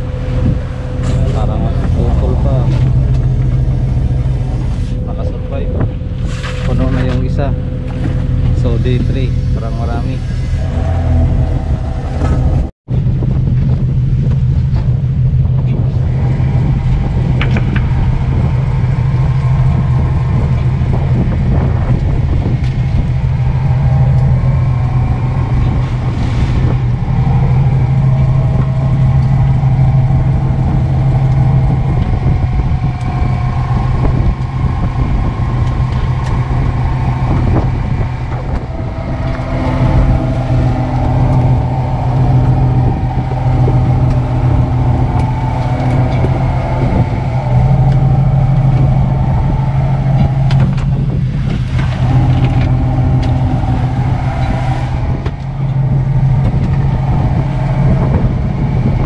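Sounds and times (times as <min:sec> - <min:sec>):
boat engine droning: 0:00.0 - 0:59.0
high wavering whine: 0:00.0 - 0:59.0.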